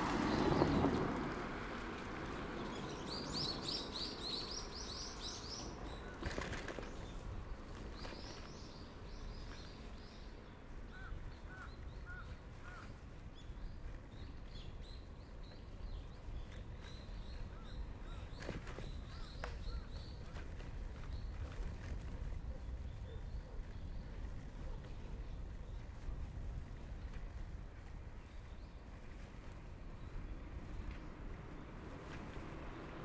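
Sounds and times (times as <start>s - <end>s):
birds chirping: 2.3s - 21.9s.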